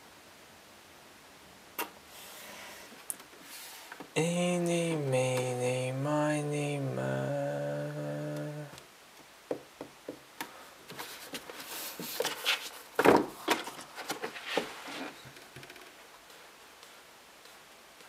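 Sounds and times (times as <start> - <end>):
book rustling: 10.9 - 15.3.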